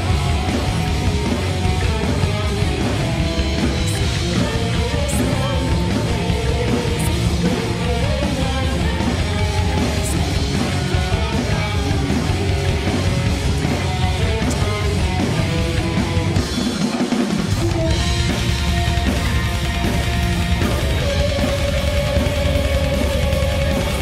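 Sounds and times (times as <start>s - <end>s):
woman singing: 0.0s - 13.1s
live rock band playing: 0.0s - 24.0s.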